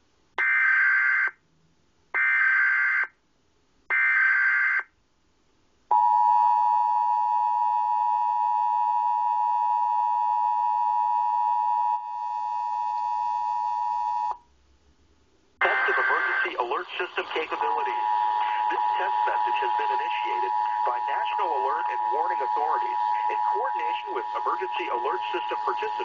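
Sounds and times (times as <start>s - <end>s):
digital data bursts: 15.6s - 26.0s.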